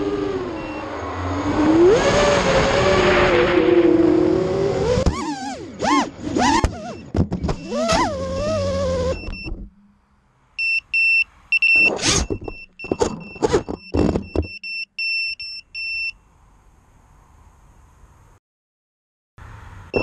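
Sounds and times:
quadcopter motors whining: 4.4 - 9.3
short high beeps: 10.6 - 16.1.

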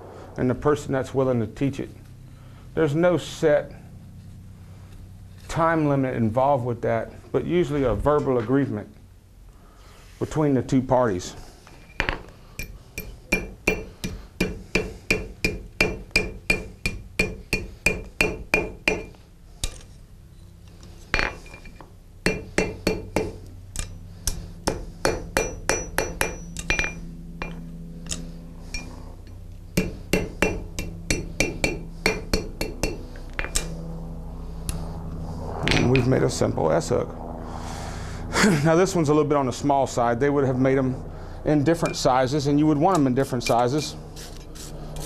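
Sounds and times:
hammer ringing on anvil: 12.6 - 19.1, 24.7 - 27.7, 29.8 - 33.7.

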